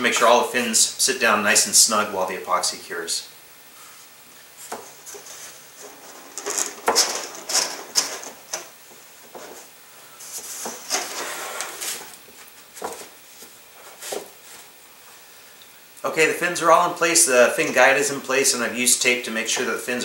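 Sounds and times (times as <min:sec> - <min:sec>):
cardboard and paper rustling: 0:04.6 - 0:14.7
tape pulled off roll: 0:04.7 - 0:09.7, 0:10.3 - 0:13.2.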